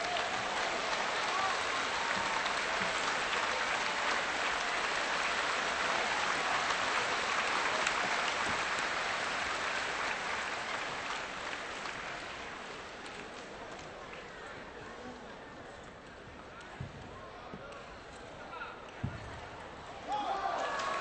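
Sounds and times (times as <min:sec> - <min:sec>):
spectators applauding: 0:00.0 - 0:14.2, 0:20.2 - 0:21.0.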